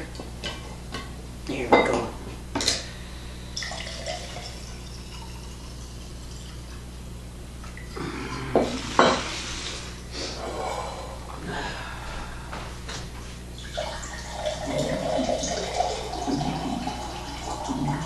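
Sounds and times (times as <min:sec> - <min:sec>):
liquid pouring into glass: 0:03.6 - 0:06.7, 0:13.6 - 0:18.0.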